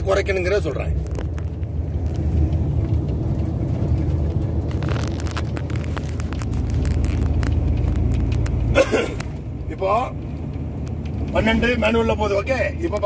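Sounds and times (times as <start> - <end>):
truck diesel engine drone: 0.0 - 13.0.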